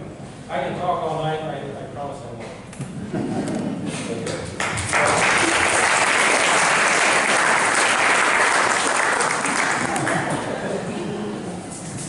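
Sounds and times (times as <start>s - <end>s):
audience applauding: 4.6s - 10.6s.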